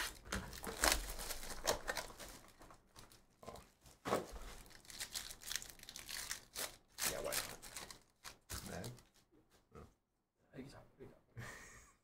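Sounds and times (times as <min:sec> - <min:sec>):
foil wrapper crinkling: 0:00.0 - 0:03.6, 0:04.2 - 0:09.1.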